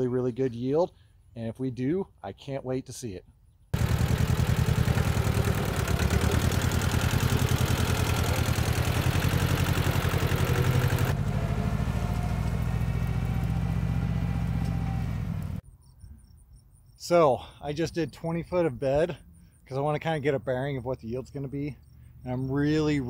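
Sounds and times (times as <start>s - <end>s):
plow pulling through soil: 3.8s - 15.6s
tractor engine running: 3.8s - 15.6s.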